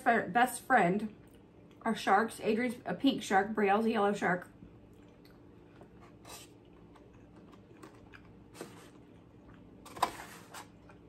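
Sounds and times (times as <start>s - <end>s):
plastic and food rustling: 5.6s - 11.0s.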